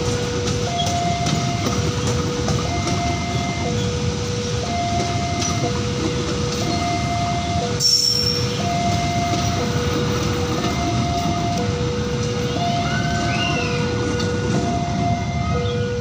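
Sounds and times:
train wheels rumbling on rails: 0:00.0 - 0:16.0
two-tone crossing alarm: 0:00.0 - 0:16.0
high wheel squeal: 0:07.8 - 0:09.1.

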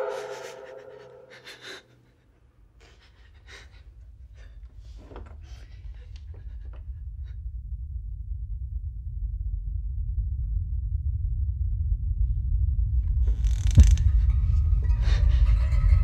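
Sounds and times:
person breathing and gasping: 0:00.0 - 0:02.1
low rumble: 0:03.8 - 0:16.0.

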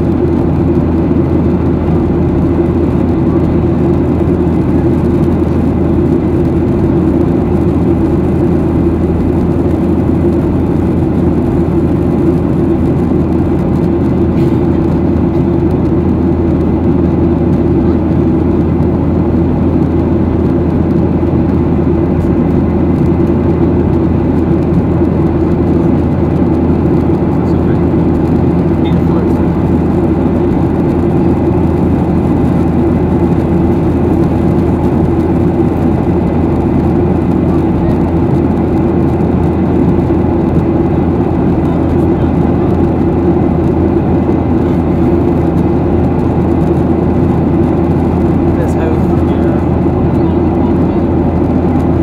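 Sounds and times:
jet engines at climb power: 0:00.0 - 0:52.0.

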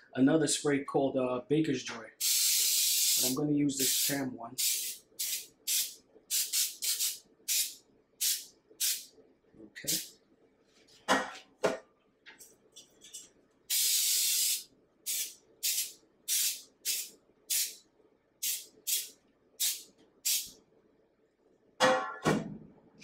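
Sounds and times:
aerosol can spraying: 0:02.2 - 0:09.1, 0:13.7 - 0:17.8, 0:18.4 - 0:20.6.

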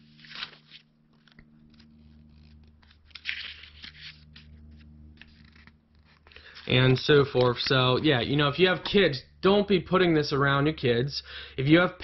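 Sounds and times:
paper pages rustling: 0:00.0 - 0:07.8.

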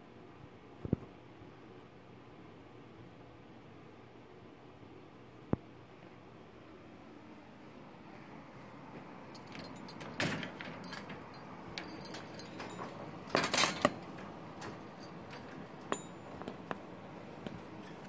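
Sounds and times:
metal wire cage rattling: 0:09.3 - 0:18.0.

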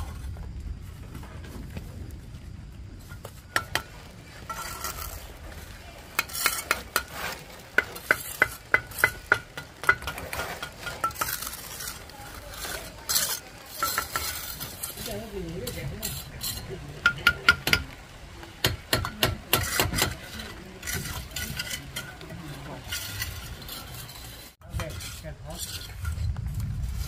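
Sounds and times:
metal tool scraping and stirring: 0:03.0 - 0:27.0.

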